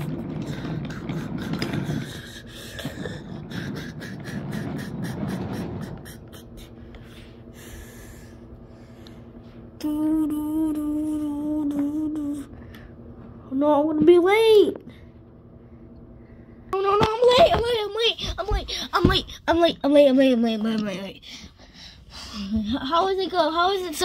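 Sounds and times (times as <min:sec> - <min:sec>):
toy train rolling on track: 0:00.0 - 0:06.7.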